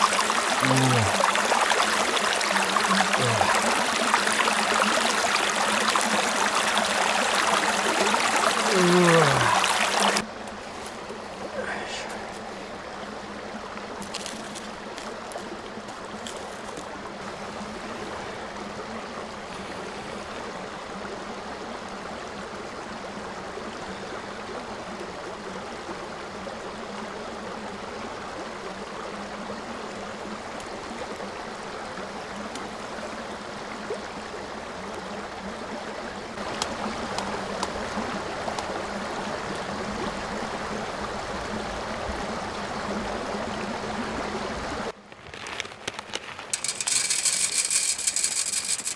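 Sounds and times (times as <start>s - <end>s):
kindling crackling: 45.0s - 48.9s
sticks clicking on grate: 46.4s - 48.9s.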